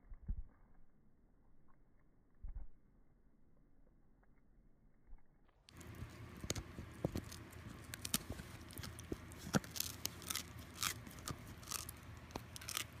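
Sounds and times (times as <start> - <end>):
dog chewing with crunches: 5.7 - 13.0.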